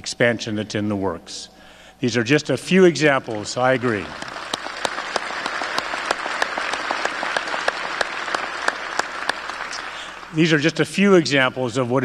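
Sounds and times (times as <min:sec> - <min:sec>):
audience applauding: 0:03.0 - 0:10.8
sharp nearby claps: 0:03.2 - 0:10.3.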